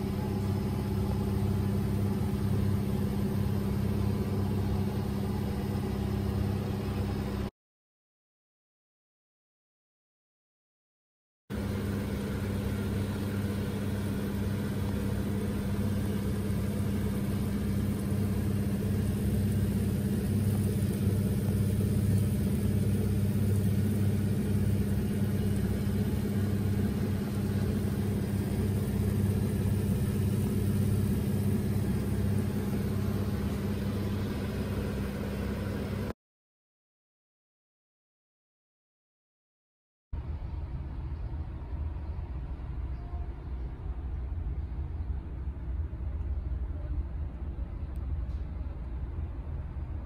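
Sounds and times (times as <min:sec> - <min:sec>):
kitchen fan motor humming: 0:00.0 - 0:07.5, 0:11.5 - 0:36.1.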